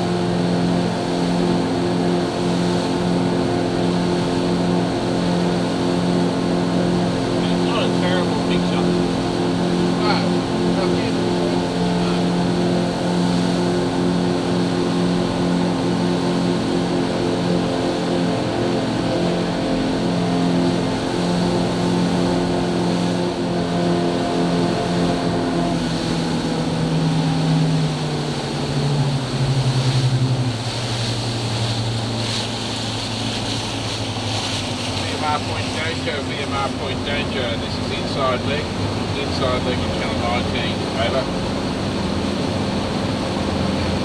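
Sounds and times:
outboard motor running hard: 0:00.0 - 0:44.0
rushing water: 0:00.0 - 0:44.0
wind: 0:00.0 - 0:44.0.

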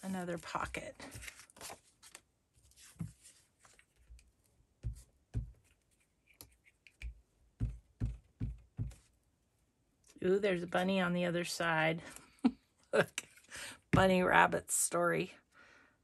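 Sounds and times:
paper rustling: 0:00.0 - 0:04.2.

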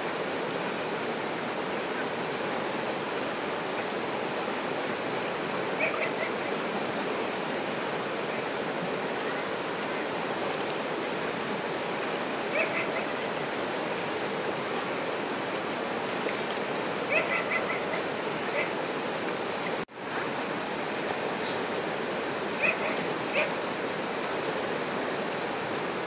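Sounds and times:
river rapids rushing over rocks: 0:00.0 - 0:26.0
animal high calls: 0:05.8 - 0:06.5, 0:12.5 - 0:13.3, 0:17.1 - 0:18.8, 0:22.6 - 0:23.6.

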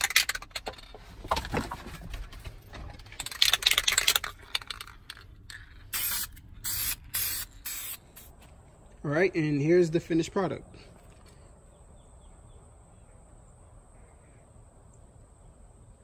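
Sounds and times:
aerosol spray hissing: 0:05.9 - 0:08.3.

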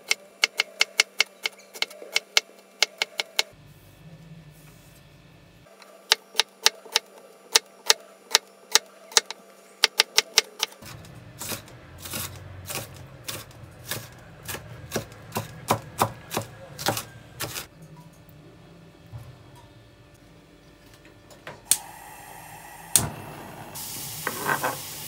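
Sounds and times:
knife chopping on wooden board: 0:11.4 - 0:17.7.

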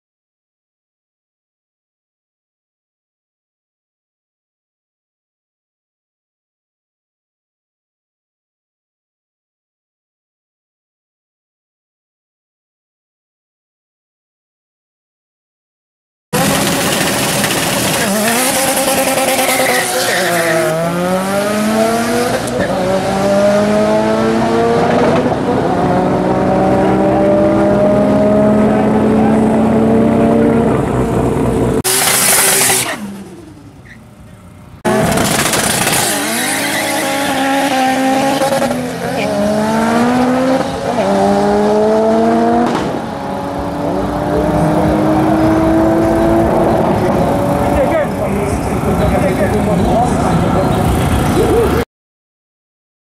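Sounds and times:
drag car engine at high revs: 0:16.4 - 0:34.0, 0:34.8 - 0:51.8.

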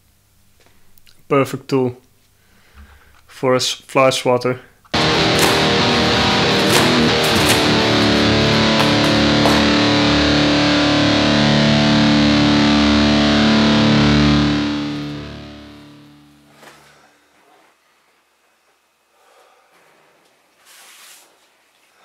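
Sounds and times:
distorted electric guitar chords: 0:05.0 - 0:16.6.

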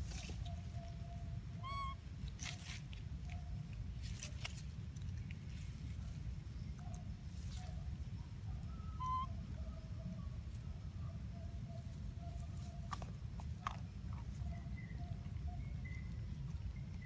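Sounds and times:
low outdoor rumble: 0:00.0 - 0:17.0
distant held calls: 0:00.7 - 0:02.1, 0:08.6 - 0:09.7.

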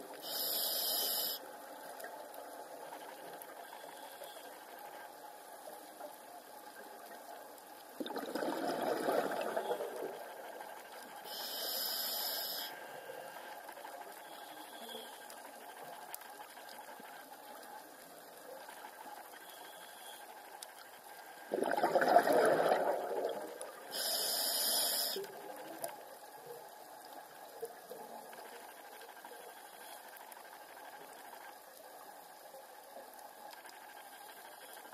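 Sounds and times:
faint underwater hiss: 0:00.0 - 0:34.9
regulator hiss: 0:00.2 - 0:01.4, 0:11.2 - 0:13.0, 0:23.9 - 0:25.3
bubbling exhaled bubbles: 0:08.0 - 0:10.2, 0:21.5 - 0:23.9.

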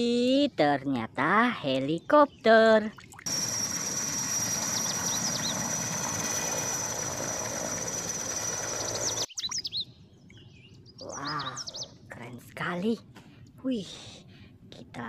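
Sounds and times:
faint bird chirps: 0:02.0 - 0:06.4, 0:08.1 - 0:12.0
helicopter engines and rotor: 0:03.3 - 0:09.3
high turbine whine: 0:03.3 - 0:09.3.

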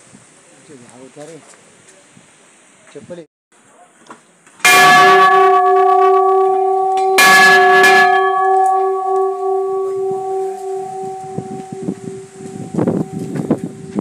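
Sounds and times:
brass bell ringing: 0:04.7 - 0:14.0.

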